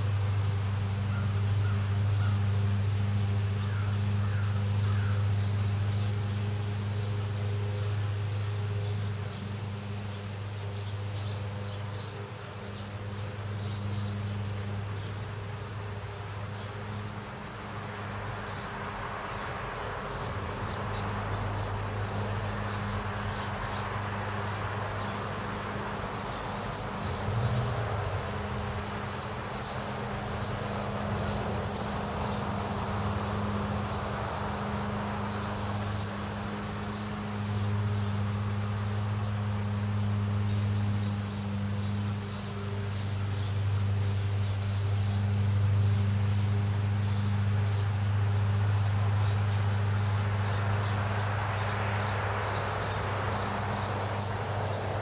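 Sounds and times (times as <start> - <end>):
steady low hum: 0.0 - 55.0
car traffic rushing: 16.2 - 55.0.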